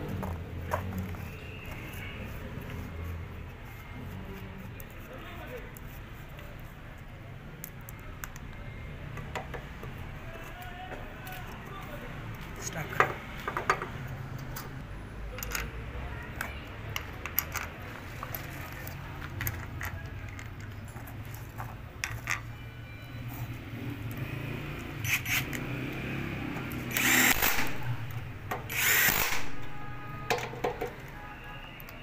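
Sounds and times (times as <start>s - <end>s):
metal parts clinking: 15.3s - 15.8s, 16.4s - 20.7s
cordless drill driving bolts: 25.0s - 25.6s, 26.9s - 29.8s.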